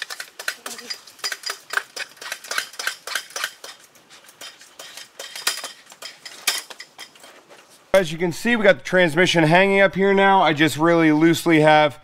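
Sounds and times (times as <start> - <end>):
metallic clinks and knocks: 0.0 - 7.4.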